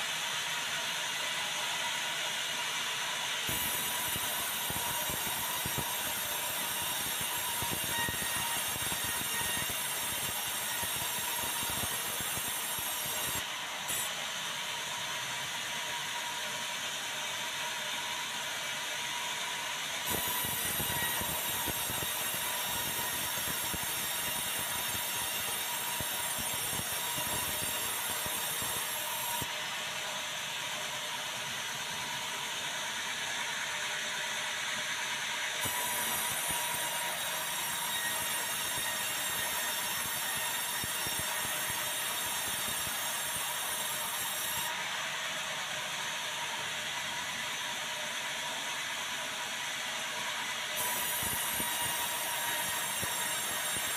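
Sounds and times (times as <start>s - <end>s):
band saw cutting timber: 3.5s - 14.2s, 20.0s - 29.5s, 35.6s - 44.7s, 50.8s - 53.9s.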